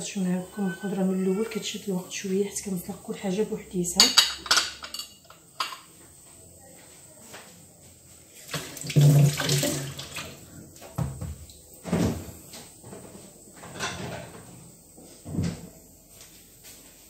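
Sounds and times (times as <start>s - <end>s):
running water: 8.4s - 12.0s.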